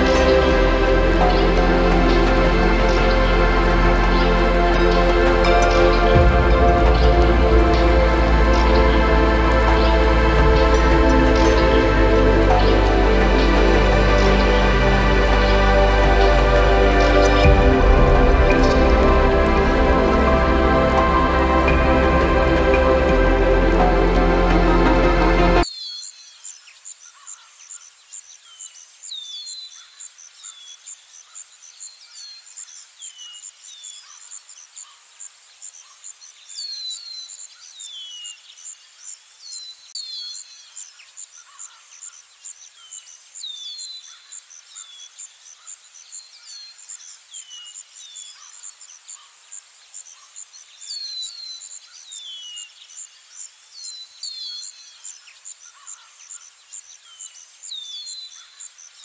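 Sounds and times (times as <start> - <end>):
insects chirping: 25.6 - 59.0
small birds chirping: 25.6 - 59.0.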